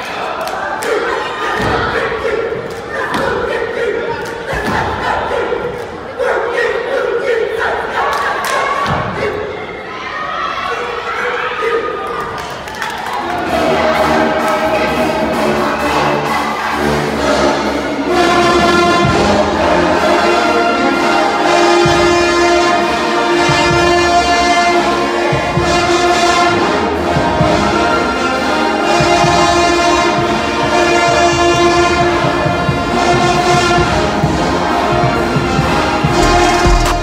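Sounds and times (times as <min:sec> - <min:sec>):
brass chords: 0:13.5 - 0:37.0
drum beat: 0:36.0 - 0:37.0.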